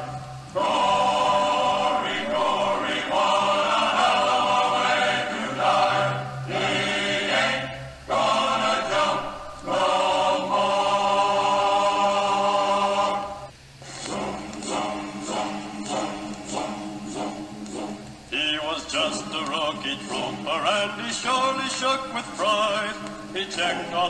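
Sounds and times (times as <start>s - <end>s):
choir singing held chords: 0.0s - 24.0s.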